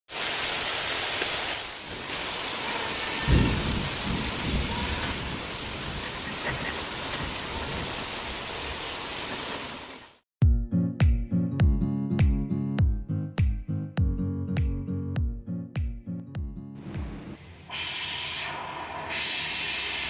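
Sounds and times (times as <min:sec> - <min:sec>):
heavy rain hissing: 0:00.1 - 0:10.2, 0:17.4 - 0:20.0
thunder rumble: 0:02.3 - 0:08.4.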